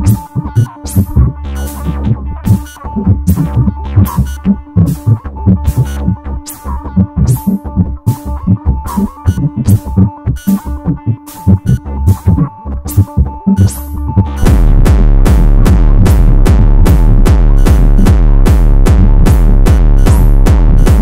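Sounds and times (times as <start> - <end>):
held synth tones: 0.0 - 14.5
electronic percussion: 0.0 - 21.0
techno beat with deep bass: 0.0 - 21.0.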